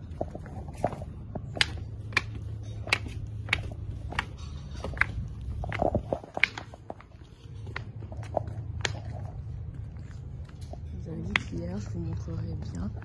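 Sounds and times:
footsteps clicking: 0.0 - 13.0
low steady rumble: 0.0 - 13.0.

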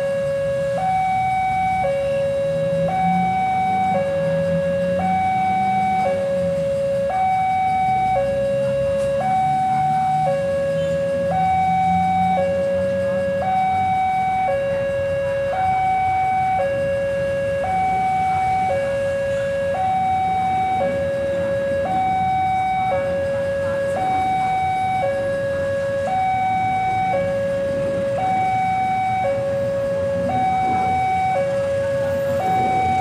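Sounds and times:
diesel locomotive engine rumble: 0.0 - 33.0
level-crossing alarm two-tone: 0.0 - 33.0.

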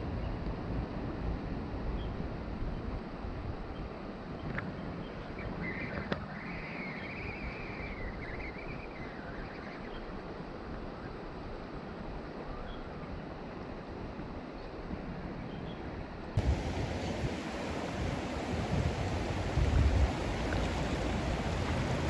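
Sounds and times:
creek water rushing: 16.4 - 22.0.

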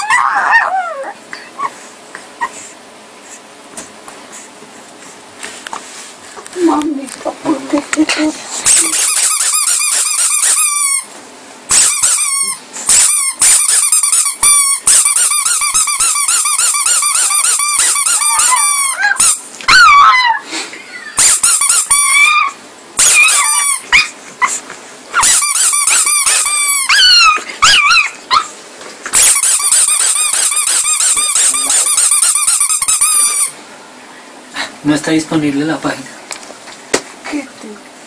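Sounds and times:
puppy squealing: 0.0 - 1.8, 8.7 - 11.1, 11.7 - 33.6.

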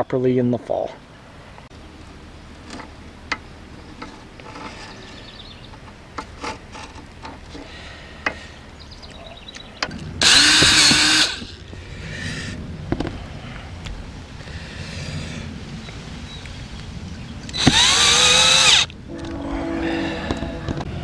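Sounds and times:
cordless drill driving screw: 10.2 - 11.5, 17.5 - 18.9.

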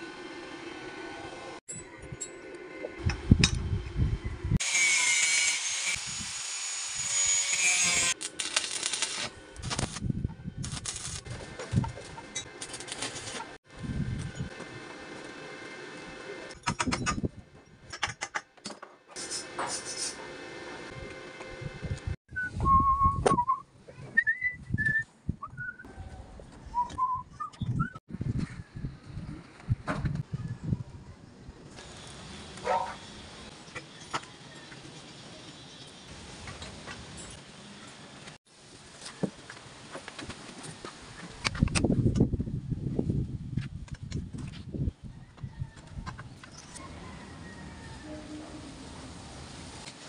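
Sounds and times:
angle grinder cutting steel pipe: 4.6 - 10.0
welding arc crackle: 4.6 - 13.6
person whistling: 22.3 - 23.6, 26.8 - 28.0.

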